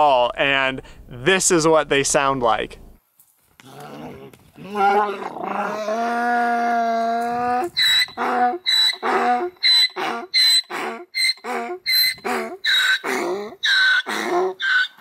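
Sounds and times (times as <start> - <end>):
donkey braying: 3.6 - 15.0.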